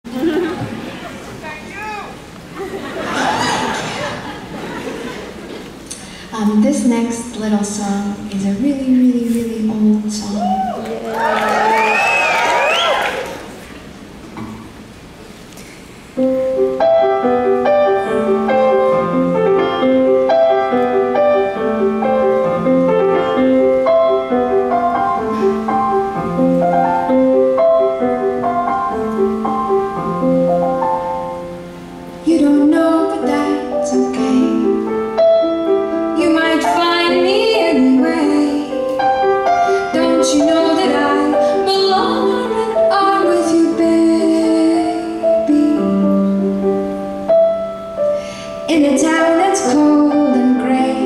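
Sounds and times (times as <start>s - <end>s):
grand piano playing: 10.8s - 51.0s
woman singing: 32.2s - 34.8s, 36.2s - 38.8s, 39.9s - 46.3s, 48.7s - 51.0s.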